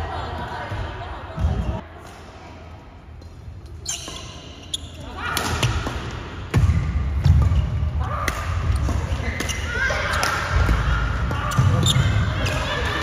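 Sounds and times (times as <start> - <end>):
sneakers squeaking on court: 3.7 - 5.0, 11.4 - 12.7
rackets hitting shuttlecock: 5.3 - 11.8.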